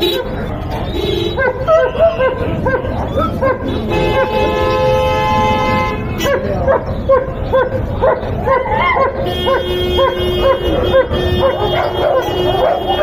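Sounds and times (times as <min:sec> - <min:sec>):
dog barking: 0:01.3 - 0:04.6, 0:06.2 - 0:13.0.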